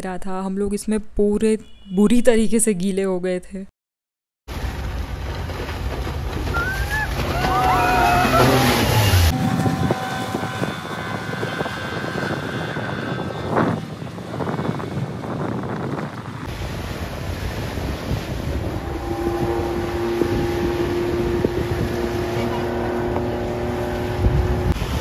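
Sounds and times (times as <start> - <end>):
outboard motor running: 4.6 - 25.0
high bending whoops: 6.5 - 13.8.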